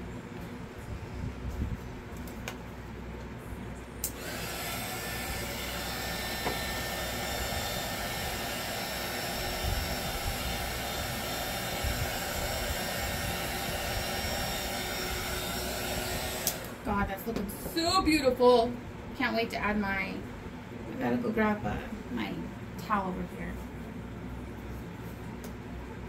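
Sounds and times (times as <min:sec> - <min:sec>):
hot-air blower switch click: 0:04.0 - 0:04.3, 0:16.3 - 0:16.8
hot-air blower whooshing hiss: 0:04.0 - 0:18.3.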